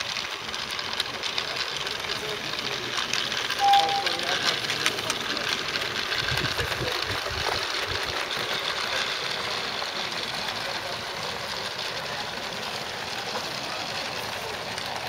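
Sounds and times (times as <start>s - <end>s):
model train rattling on track: 0.0s - 15.0s.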